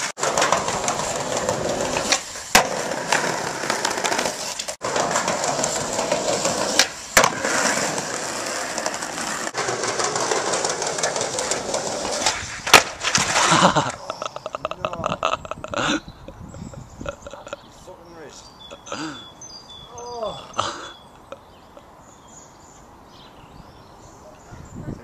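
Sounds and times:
skateboard clacking on stone: 0.0 - 14.0
skateboard wheels rolling on paving: 0.0 - 17.5.

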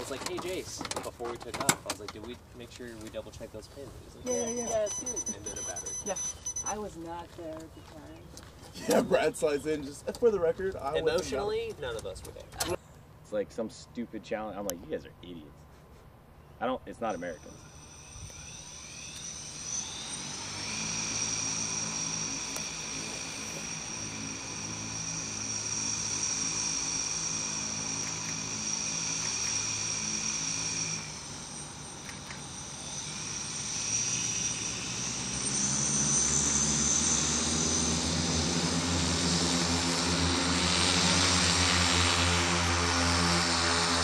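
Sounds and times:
propeller hum: 0.0 - 13.2, 16.4 - 44.0
electric motors whining: 4.1 - 9.8, 17.1 - 44.0.

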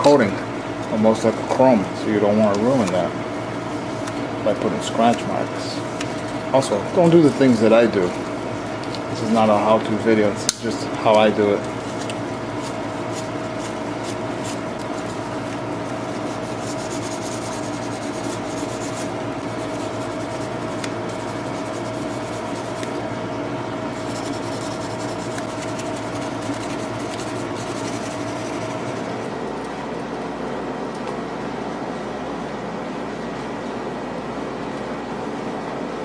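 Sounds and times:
sandpaper rubbing on metal: 16.1 - 22.9, 23.9 - 29.1.

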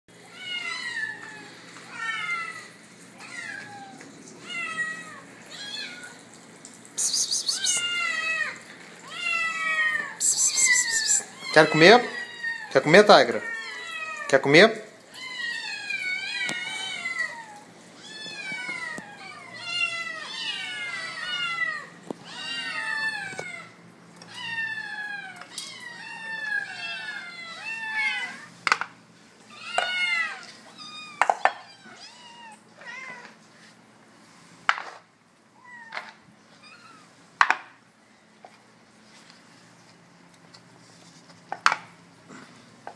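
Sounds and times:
kittens meowing: 0.3 - 6.3, 7.1 - 12.8, 15.1 - 28.6, 29.5 - 33.4.

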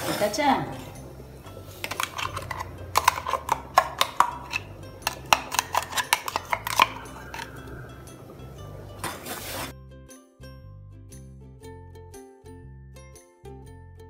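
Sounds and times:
steel jar clinking on metal pot: 1.6 - 9.7.

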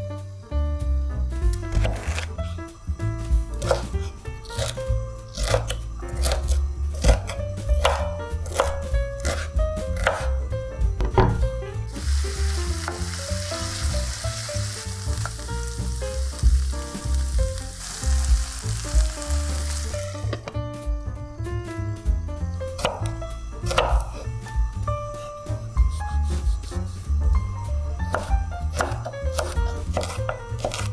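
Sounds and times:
background music: 0.0 - 30.9
knife chopping on cutting board: 1.7 - 2.3, 3.5 - 11.5, 22.8 - 24.2, 28.0 - 30.9
food sizzling in a frying pan: 11.9 - 20.4.

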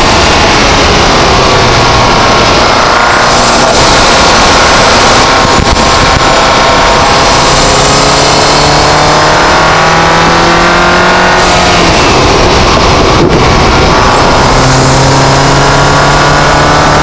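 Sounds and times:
high turbo whistle: 0.0 - 10.3
car engine accelerating: 0.0 - 17.0.

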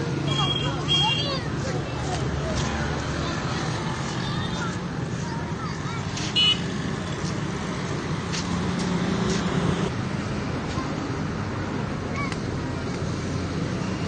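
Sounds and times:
outdoor traffic noise: 0.0 - 14.0.

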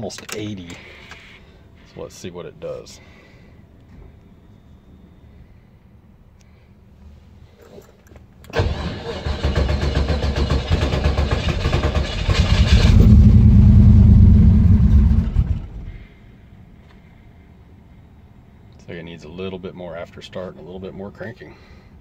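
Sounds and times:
engine running: 7.7 - 16.2
starter cranking engine: 8.5 - 15.9.

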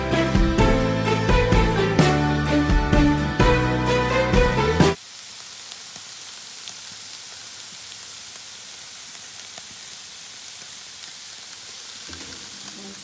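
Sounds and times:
background music: 0.0 - 5.0
chicken sizzling on grill: 2.8 - 13.0.

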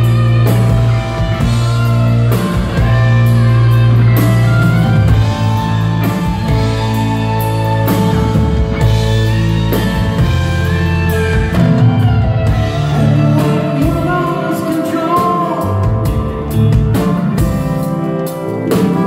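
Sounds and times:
bass guitar: 0.0 - 19.0
drums: 0.0 - 19.0
person singing: 12.4 - 17.1.

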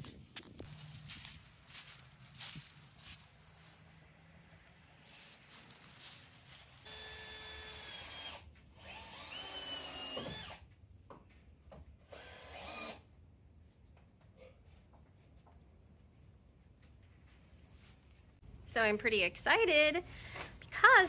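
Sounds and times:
cordless drill driving screws: 6.9 - 10.6, 12.1 - 13.0.

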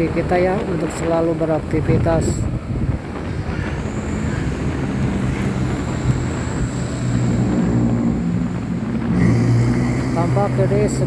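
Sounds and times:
wind and road noise: 0.0 - 11.0
motorcycle engine running: 2.0 - 11.0
faint high whine: 2.8 - 11.0.

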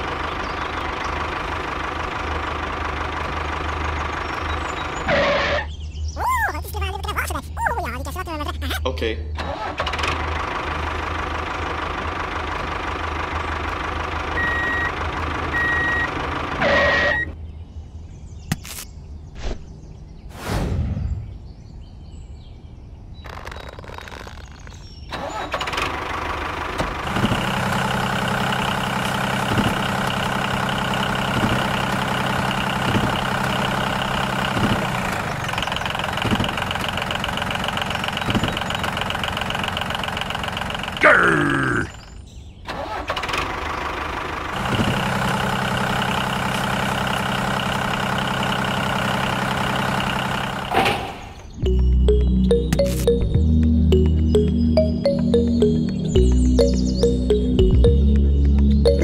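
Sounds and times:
diesel tractor engine running: 0.0 - 17.4, 23.2 - 59.0
knocks and a thud: 36.2 - 36.7
short high beeps: 51.7 - 58.1.

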